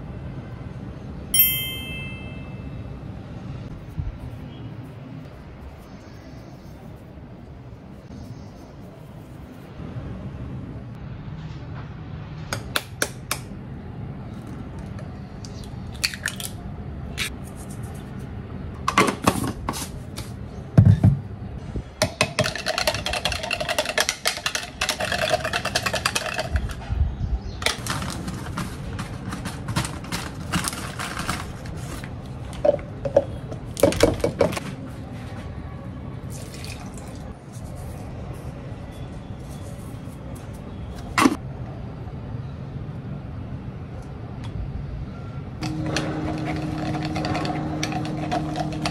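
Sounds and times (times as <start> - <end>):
utensils clicking and knocking: 22.0 - 26.8, 45.6 - 48.9
egg whisked in plastic jug: 22.4 - 26.8, 45.6 - 48.9.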